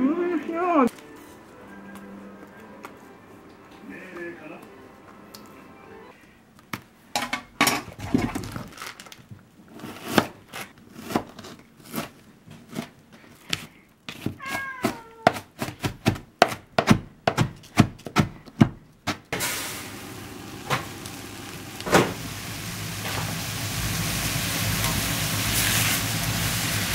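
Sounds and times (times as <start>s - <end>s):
knife chopping on cutting board: 10.0s - 12.1s, 13.5s - 19.2s
cat meowing: 14.4s - 15.4s
vegetables sizzling in wok: 19.4s - 26.9s.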